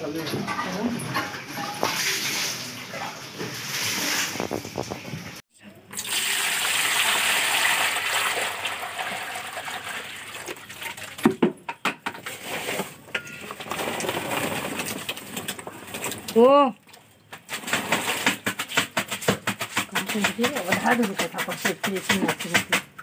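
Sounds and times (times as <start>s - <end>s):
water pouring into plastic tub: 1.6s - 5.3s, 5.9s - 11.3s, 12.3s - 16.4s
vegetables knocking and splashing: 10.3s - 23.0s.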